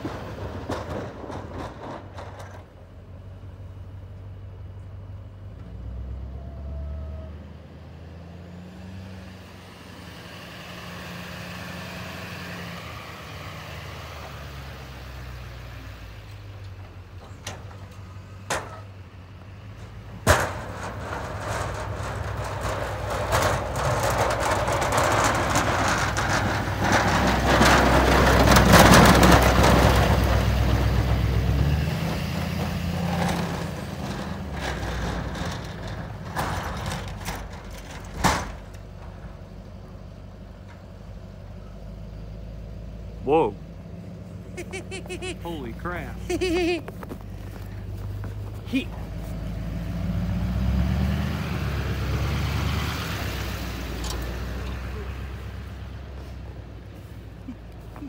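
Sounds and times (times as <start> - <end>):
plow blade scraping snow: 8.2 - 18.4, 19.5 - 40.5, 43.8 - 58.0
truck engine running: 11.1 - 58.0.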